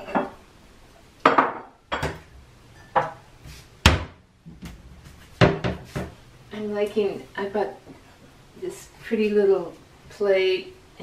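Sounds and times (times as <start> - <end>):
dishes knocking and clinking: 1.2 - 4.8, 5.4 - 6.2.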